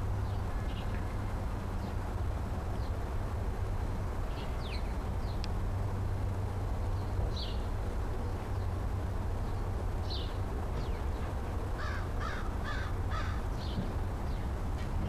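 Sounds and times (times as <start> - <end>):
steady low rumble: 0.0 - 15.0
crow cawing: 11.8 - 13.4.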